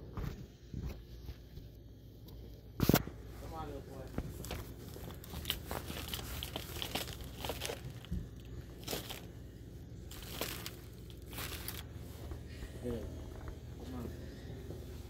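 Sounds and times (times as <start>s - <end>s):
plastic wrappers crinkling: 4.0s - 12.3s.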